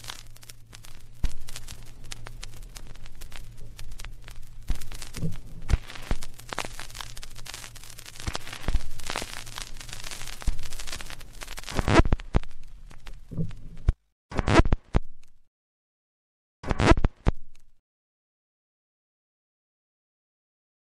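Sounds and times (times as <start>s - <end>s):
hiss: 0.0s - 12.1s
low hum: 0.0s - 13.9s
record crackling and popping: 0.0s - 15.5s, 16.6s - 17.8s.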